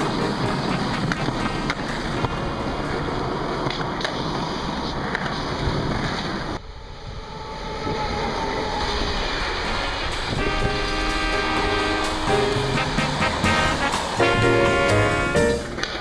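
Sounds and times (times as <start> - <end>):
music: 0.0 - 1.0, 10.1 - 16.0
freight train rumbling past: 0.0 - 16.0
skateboard wheels rolling on pavement: 0.0 - 16.0.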